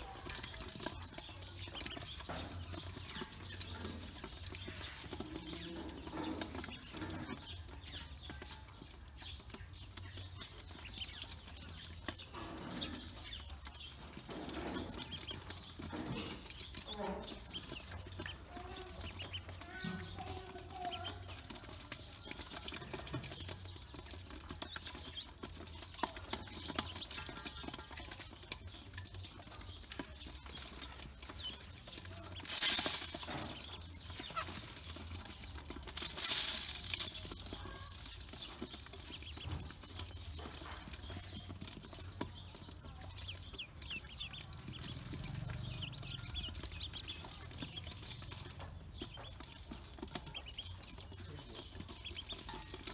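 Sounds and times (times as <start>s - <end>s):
ducklings peeping: 0.0s - 52.9s
grain showering into metal bowl: 30.3s - 42.1s.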